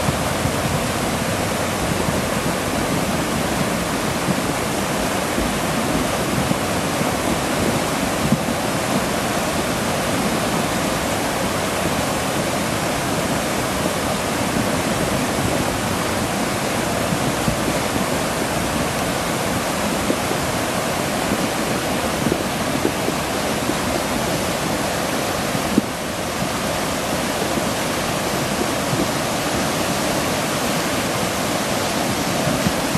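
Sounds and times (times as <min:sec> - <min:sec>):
flood water rushing in creek: 0:00.0 - 0:32.9.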